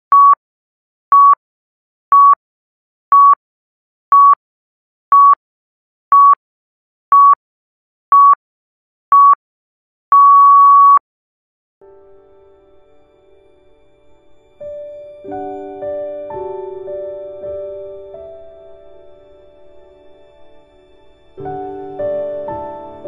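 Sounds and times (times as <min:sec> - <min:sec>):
long timer beep: 0:10.2 - 0:11.0
soft music: 0:11.8 - 0:23.0.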